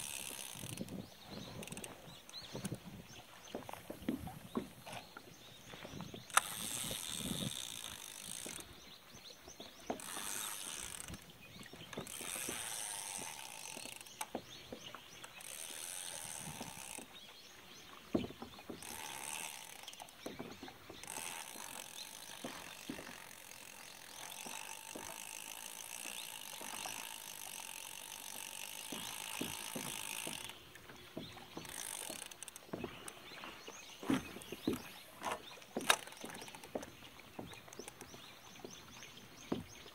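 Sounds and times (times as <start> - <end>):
fishing reel gears whirring: 0.0 - 2.8, 6.0 - 8.8, 9.6 - 17.2, 18.6 - 33.5, 34.2 - 36.8.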